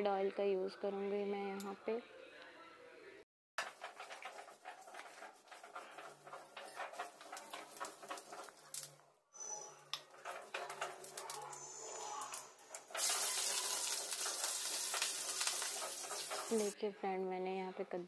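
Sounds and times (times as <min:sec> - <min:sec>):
hot oil sizzling: 0:03.6 - 0:16.8
kitchen utensils clinking: 0:03.6 - 0:16.8.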